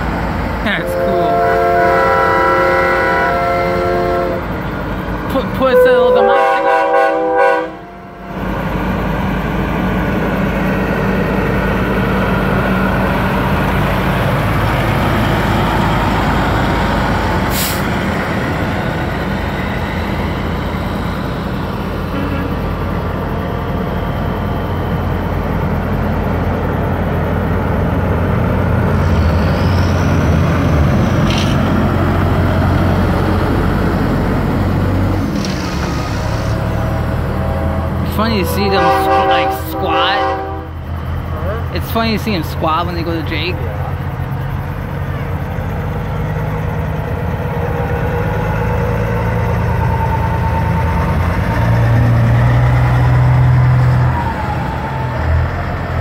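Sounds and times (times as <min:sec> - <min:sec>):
truck diesel engines rumbling: 0:00.0 - 0:56.0
air horn blast: 0:00.8 - 0:04.5, 0:05.7 - 0:08.3, 0:37.4 - 0:40.8.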